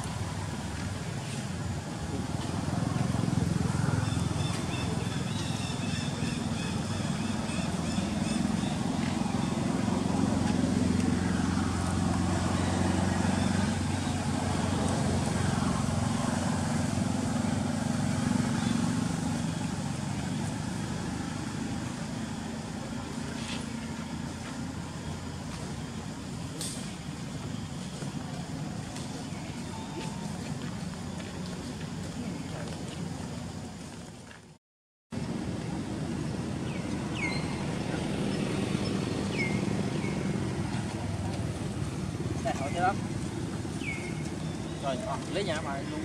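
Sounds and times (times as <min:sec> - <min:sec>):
vehicle engine running: 0:06.2 - 0:34.4.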